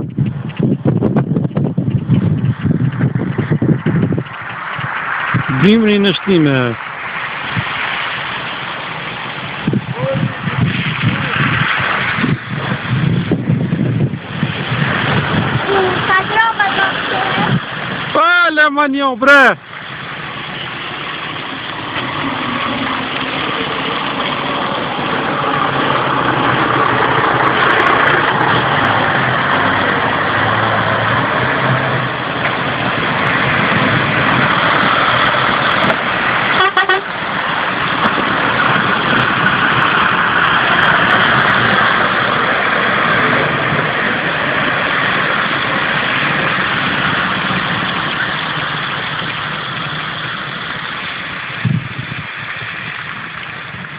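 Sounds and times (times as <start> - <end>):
diesel truck engines: 0.0 - 53.9
tyres hissing on wet road: 2.3 - 53.9
short horn toot: 36.5 - 37.1.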